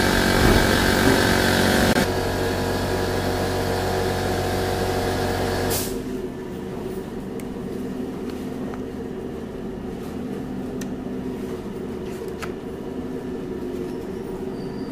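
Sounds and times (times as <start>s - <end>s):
machine hum: 0.0s - 8.2s.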